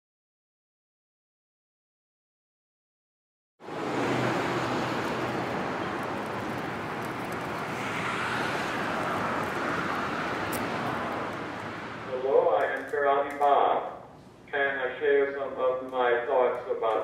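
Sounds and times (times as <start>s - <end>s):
distant traffic hiss: 3.6s - 17.0s.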